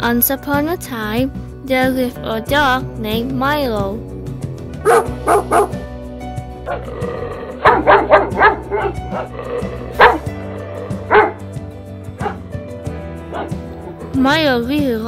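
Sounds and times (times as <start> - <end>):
background music: 0.0 - 15.0
dog barking: 4.8 - 5.8, 7.6 - 9.3, 9.9 - 10.3, 10.9 - 11.4, 12.2 - 12.4, 13.3 - 13.5.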